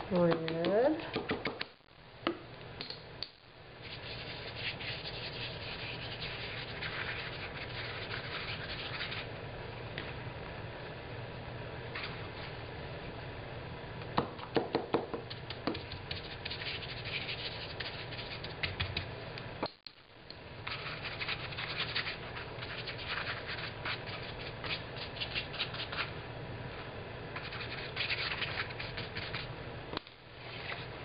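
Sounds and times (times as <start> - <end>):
paintbrush scrubbing damp cloth: 3.9 - 9.2.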